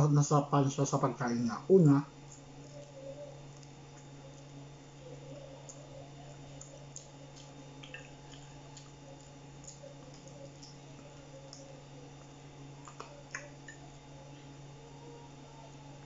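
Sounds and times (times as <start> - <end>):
steady low hum: 0.0 - 16.0
person eating and chewing: 2.2 - 14.8.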